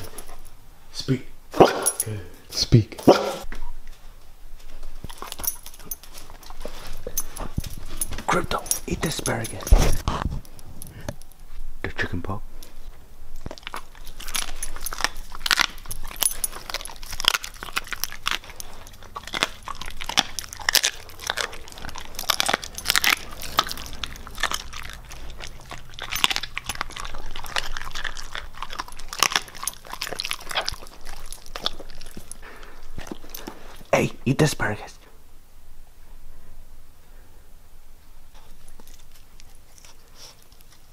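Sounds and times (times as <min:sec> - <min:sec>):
dog crunching bone: 0:04.9 - 0:11.4, 0:13.4 - 0:33.9, 0:38.3 - 0:40.9.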